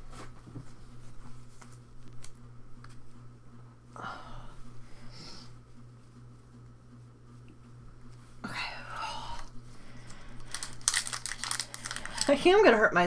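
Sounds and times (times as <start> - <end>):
low electrical hum: 0.0 - 13.0
cards clicking and rustling: 10.0 - 12.4.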